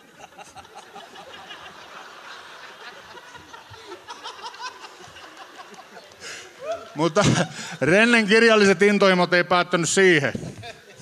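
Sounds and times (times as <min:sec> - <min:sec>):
audience laughing: 0:00.0 - 0:08.0, 0:10.4 - 0:11.0.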